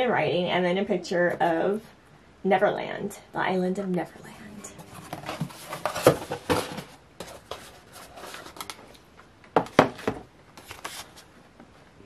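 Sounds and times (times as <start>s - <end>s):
cardboard box rustling and tapping: 5.0s - 8.0s.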